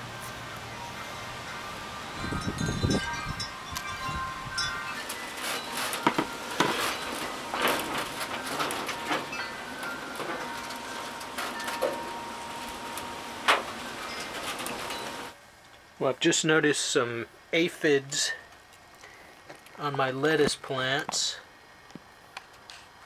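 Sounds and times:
faint steady ringing tones: 0.0 - 16.0.

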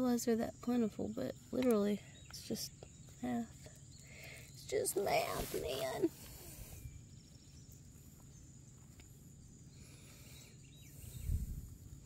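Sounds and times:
faint insect chirping: 0.0 - 12.0
wind rumble on microphone: 10.9 - 12.0.

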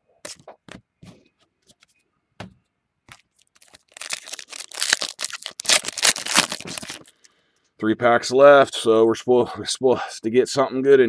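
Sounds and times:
foil pack crinkling as torn: 3.1 - 7.2
trading cards handled: 3.1 - 7.2.

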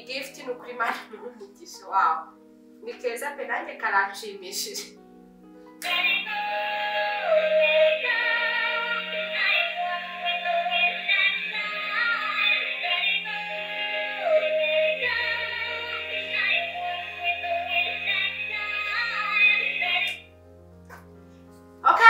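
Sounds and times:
synthesized singing voice: 5.8 - 20.2.

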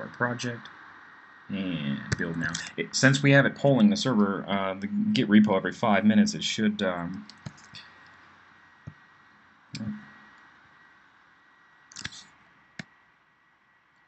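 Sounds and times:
faint background hiss: 0.0 - 14.0
computer mouse clicks: 11.9 - 12.2.

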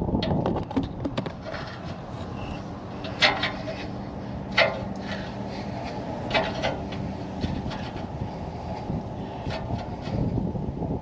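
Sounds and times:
steady low hum: 0.0 - 11.0
rubbing and rustling: 3.0 - 10.3.

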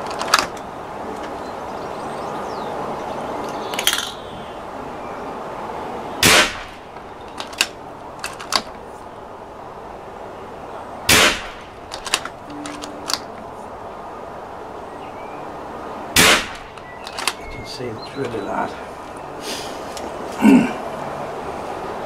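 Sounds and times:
air rifle shots: 6.2 - 6.8, 11.1 - 12.3, 16.2 - 17.4
rifle action clicks: 7.3 - 8.8, 11.1 - 13.3, 16.2 - 17.4.

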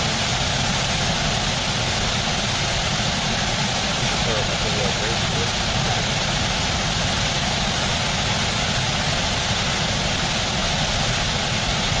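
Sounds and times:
whitewater rushing down waterfall: 0.0 - 12.0.

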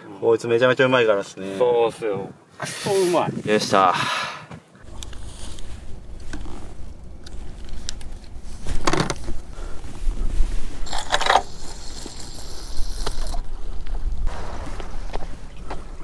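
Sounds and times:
gloved hands rustling fishing gear: 4.8 - 16.0
low rumble: 4.8 - 16.0.

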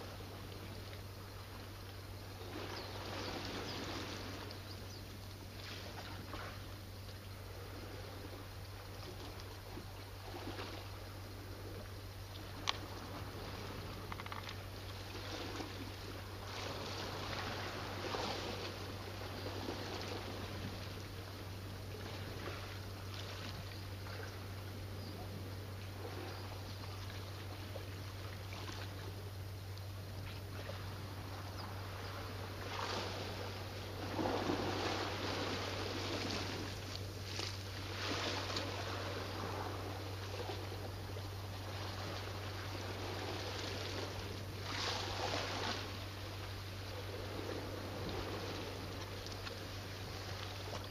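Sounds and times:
faint low hum: 0.0 - 50.9
waves washing on rocky shore: 12.4 - 23.6, 30.8 - 50.9.

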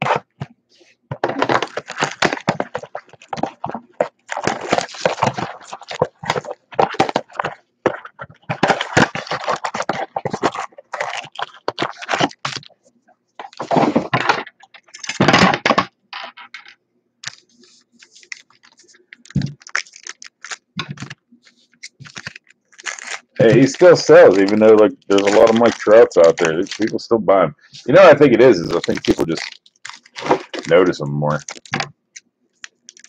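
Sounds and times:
foil packs being torn open: 1.2 - 12.7, 18.1 - 21.1, 21.9 - 27.0, 28.1 - 31.9, 32.6 - 33.0.

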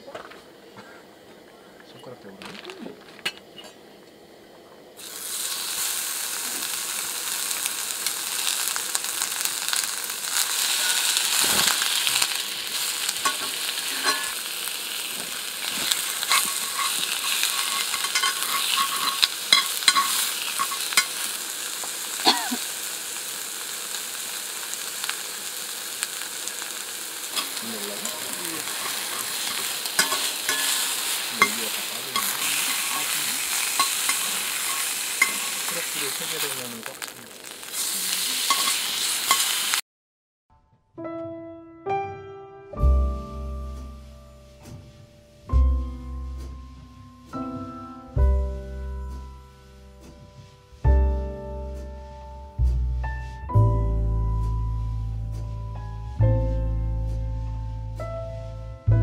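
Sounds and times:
beef sizzling in a skillet: 4.9 - 39.8, 43.2 - 59.0
metal tongs clicking on pan: 13.2 - 14.4, 15.8 - 21.2, 27.4 - 35.9, 38.4 - 39.5.

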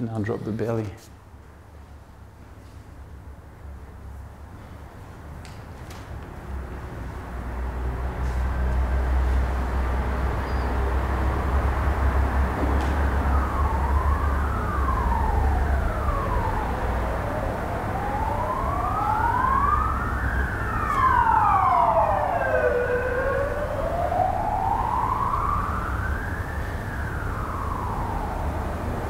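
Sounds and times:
low traffic rumble: 0.0 - 29.0
emergency vehicle sirens wailing: 6.6 - 29.0.

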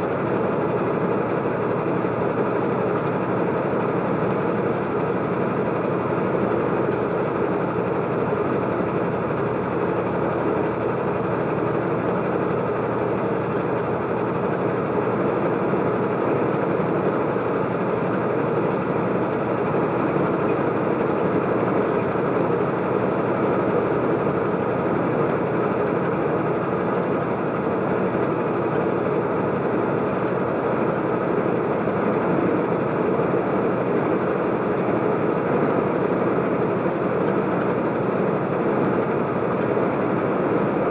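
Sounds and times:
vehicle engine and road noise: 0.0 - 40.9.

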